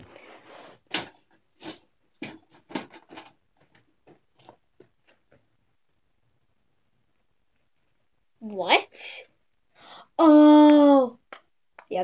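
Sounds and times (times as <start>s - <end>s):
plastic toys rustling: 0.0s - 6.0s
plastic toys knocking and clicking: 0.9s - 5.5s, 10.5s - 12.0s.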